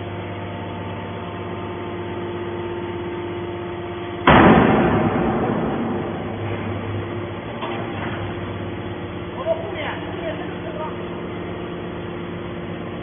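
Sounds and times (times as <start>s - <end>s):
hydraulic power unit humming: 0.0s - 13.0s
loud metal bang: 4.2s - 8.5s.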